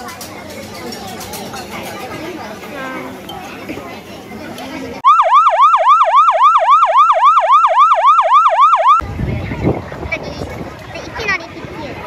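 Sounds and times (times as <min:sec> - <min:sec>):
yelping siren wail: 0:05.0 - 0:09.0.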